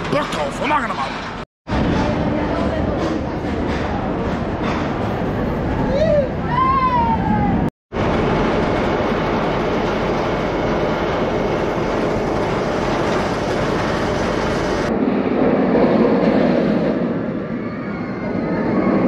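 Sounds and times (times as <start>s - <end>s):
roller coaster train rushing on track: 0.0s - 19.0s.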